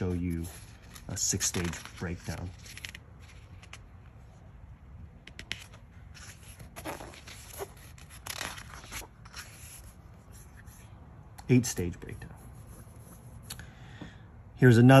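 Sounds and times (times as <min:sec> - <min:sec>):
book pages rustling and turning: 0:00.0 - 0:04.4, 0:05.2 - 0:11.6.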